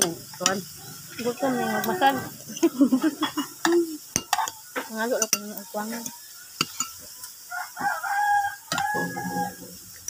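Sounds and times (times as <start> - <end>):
cutlery clinking on a plate: 3.6 - 7.1, 8.7 - 9.7.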